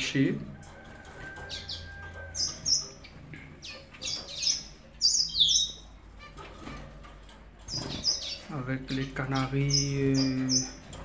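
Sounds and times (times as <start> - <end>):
canaries chirping: 0.0 - 11.0.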